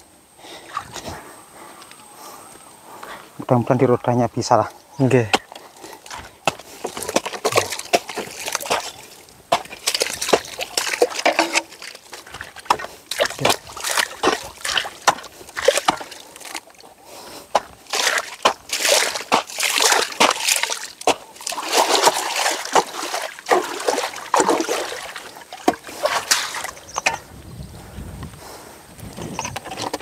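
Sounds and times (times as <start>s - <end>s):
wet mud slopping and splashing: 5.2s - 27.2s
hoe chopping into wet mud: 5.3s - 16.8s, 17.5s - 27.2s.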